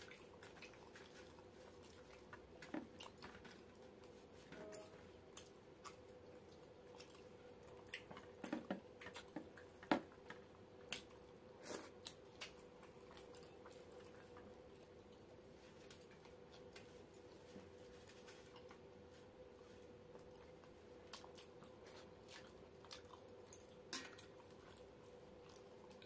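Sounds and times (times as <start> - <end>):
chewing and mouth smacks: 0.0 - 4.3, 5.3 - 26.0
faint steady hum: 0.0 - 26.0
fingers squishing food: 5.2 - 17.3.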